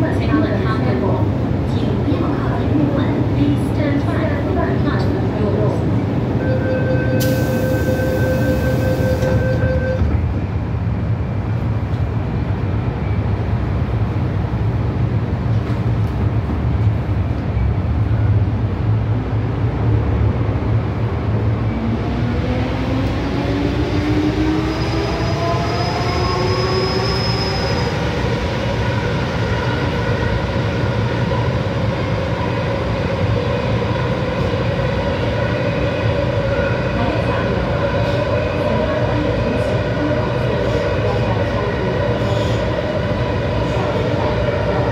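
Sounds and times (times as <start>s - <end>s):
subway car low rumble: 0.0s - 44.9s
door warning tone: 6.4s - 10.1s.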